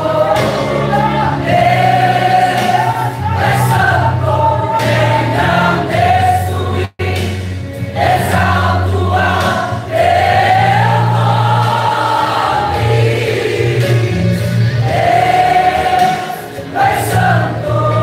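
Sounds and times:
choir singing gospel song: 0:00.0 - 0:18.0.

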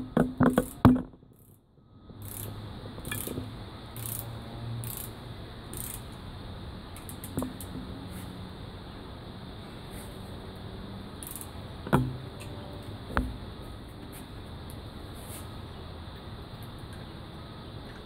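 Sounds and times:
ratchet wrench clicking: 0:00.6 - 0:06.2, 0:06.9 - 0:07.8, 0:11.2 - 0:11.6.

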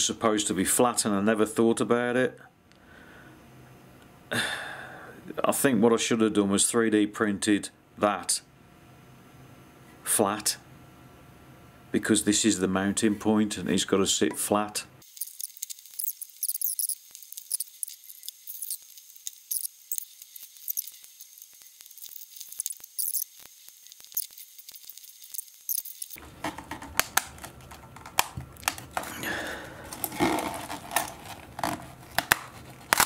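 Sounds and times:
sharp clicks and crackles: 0:15.0 - 0:29.1, 0:30.0 - 0:33.0.

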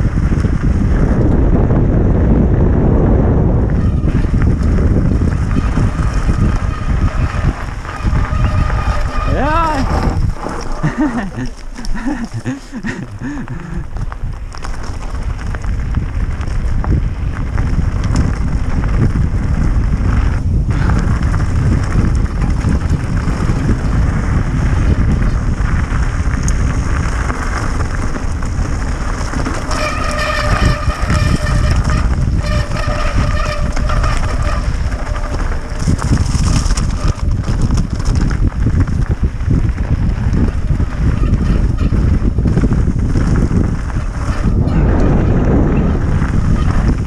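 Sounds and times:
bike rattling over gravel: 0:00.0 - 0:47.0
wind rumble on microphone: 0:00.0 - 0:47.0
high squeal: 0:05.4 - 0:10.2.

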